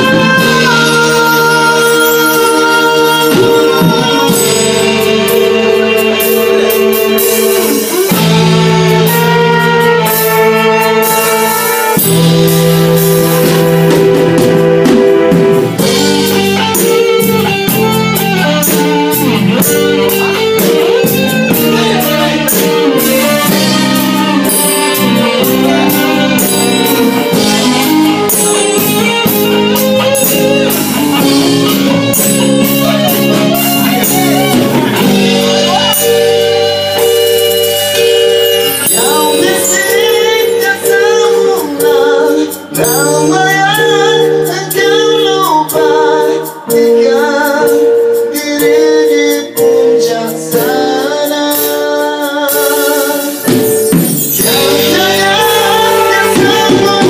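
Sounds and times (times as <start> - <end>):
drums: 0.0 - 57.0
guitars: 0.0 - 57.0
saxophone: 0.0 - 57.0.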